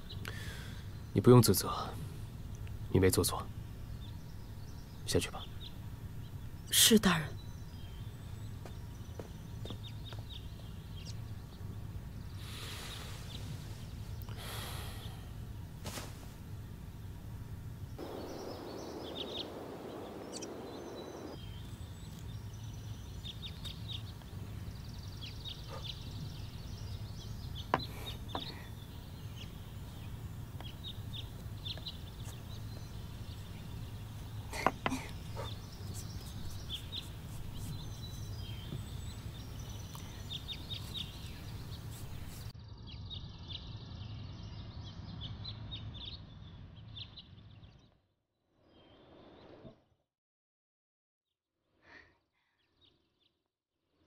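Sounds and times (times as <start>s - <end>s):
steady low hum: 0.0s - 44.9s
small birds chirping: 0.0s - 48.0s.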